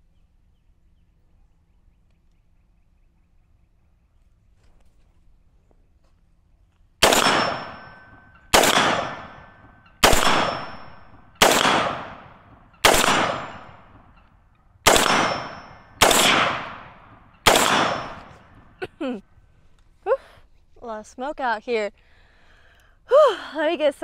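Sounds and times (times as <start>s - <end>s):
rifle shots echoing: 7.0s - 14.2s, 14.8s - 18.8s.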